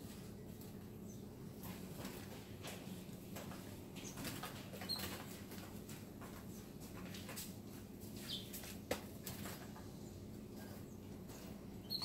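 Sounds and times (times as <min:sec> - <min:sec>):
faint high bird chirps: 0:08.2 - 0:08.6, 0:11.7 - 0:12.0.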